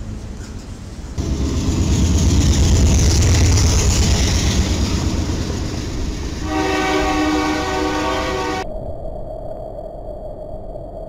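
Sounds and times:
freight train running past: 0.0 - 8.6
locomotive air horn chord: 6.4 - 8.6.

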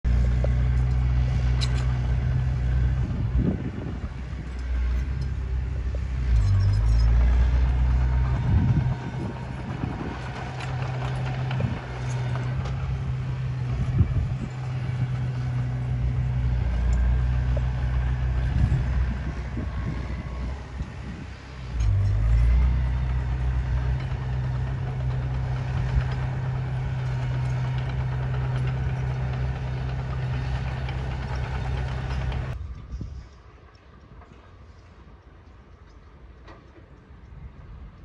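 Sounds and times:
bulldozer diesel engine under load: 0.0 - 32.6.

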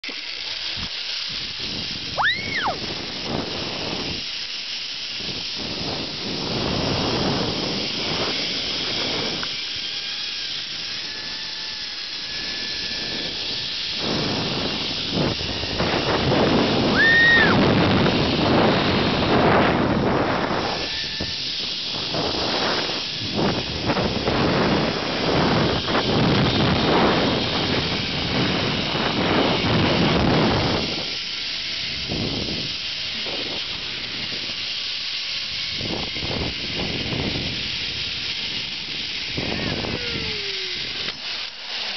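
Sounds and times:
wind buffeting microphone: 0.7 - 41.9.

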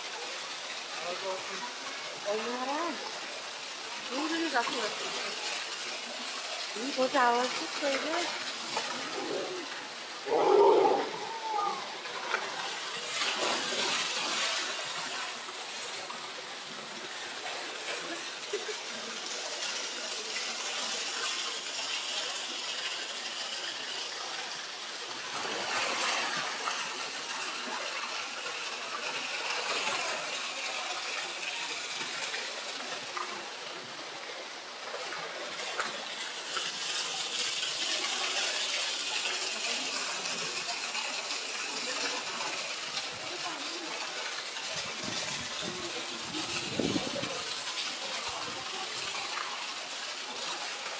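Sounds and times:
waterfall pouring into pool: 0.0 - 50.9.

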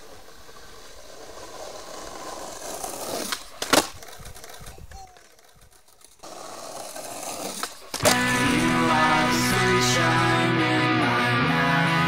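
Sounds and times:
skateboard clacks: 0.0 - 8.8
skateboard wheels rolling on asphalt: 0.0 - 10.5.

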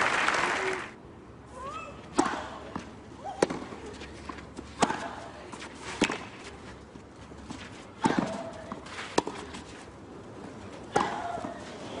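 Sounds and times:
tennis racket striking ball: 8.0 - 9.6.

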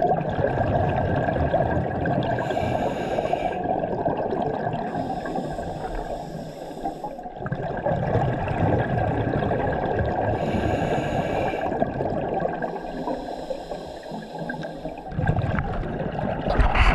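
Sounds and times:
regulator hissing inhale: 2.4 - 3.7, 4.9 - 7.2, 10.4 - 11.7, 12.6 - 15.1
burbling exhale of bubbles: 7.3 - 13.0, 14.1 - 16.9.

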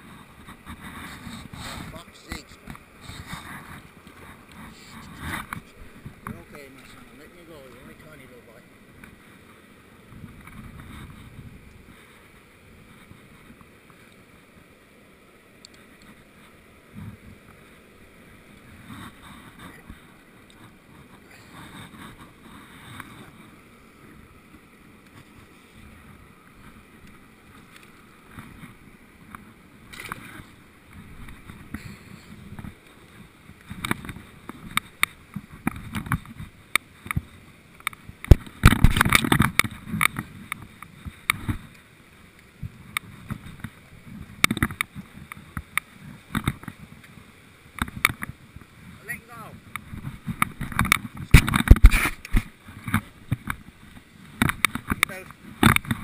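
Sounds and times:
wind rumble on microphone: 0.0 - 14.7, 15.9 - 41.8, 42.5 - 56.0
sharp knocks and scrapes: 0.1 - 7.0, 49.8 - 53.6.

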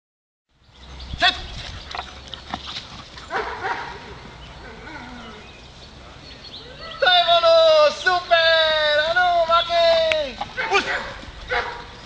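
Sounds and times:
man calling commands: 1.2 - 1.5, 6.8 - 11.2
dog barking: 3.3 - 4.0, 10.6 - 11.9.

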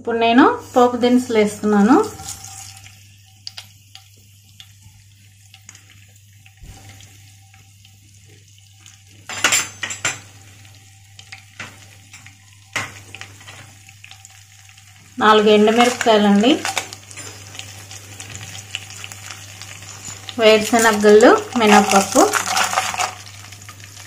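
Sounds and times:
faint sizzle of oil: 0.0 - 24.0
seeds popping and crackling: 19.8 - 23.8.

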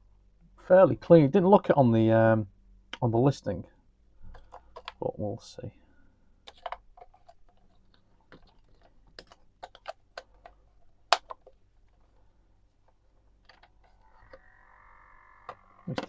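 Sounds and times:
plastic clicks and taps: 4.3 - 5.0, 8.3 - 11.6
cassette motor whirring: 13.9 - 16.0.

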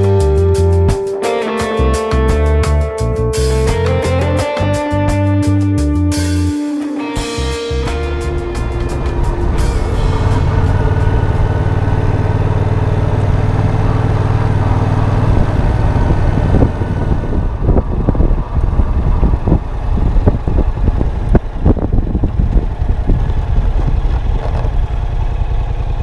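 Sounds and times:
motorcycle engine running: 0.0 - 26.0
wind buffeting thumps: 7.7 - 25.2.

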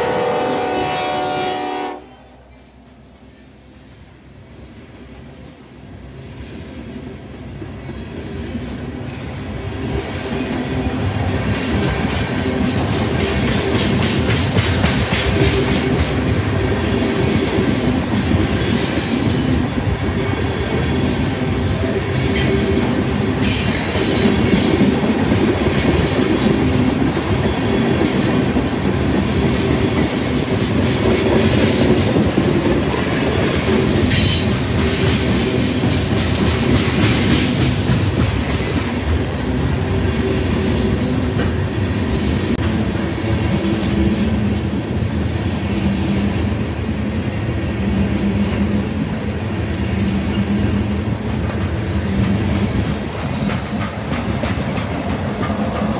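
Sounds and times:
freight train rumbling past: 0.0 - 55.9
wheels clicking over rail joints: 51.0 - 55.9.

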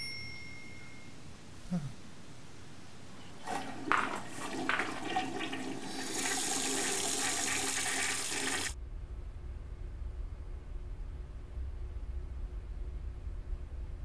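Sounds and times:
toilet flushing: 3.3 - 8.8.

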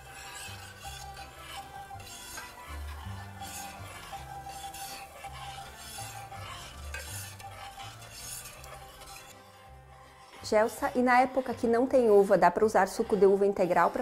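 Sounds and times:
quiet background music: 0.0 - 14.0
spoon scraping in a pot: 0.0 - 14.0.

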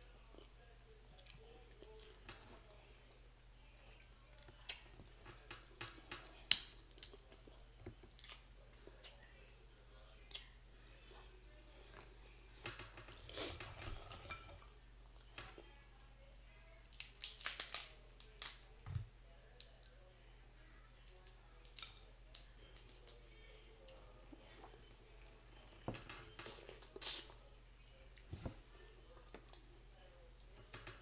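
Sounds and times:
chewing: 1.1 - 2.7, 3.9 - 14.7
crab shells cracking: 5.8 - 7.2, 16.9 - 18.6.

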